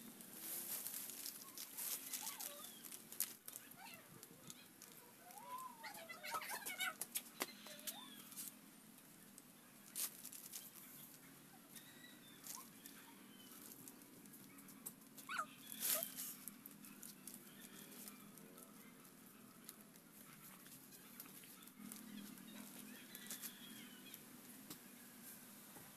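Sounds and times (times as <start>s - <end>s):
leaf strips rustling and crackling: 0.0s - 11.3s, 12.3s - 25.7s
faint animal calls: 1.4s - 3.0s, 3.6s - 8.5s, 14.5s - 16.5s.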